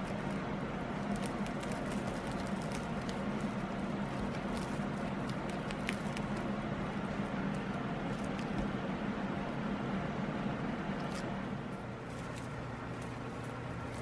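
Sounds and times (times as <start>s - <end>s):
dry hay crackling and rustling: 0.0s - 6.4s, 12.0s - 14.0s
steady low hum: 0.0s - 14.0s.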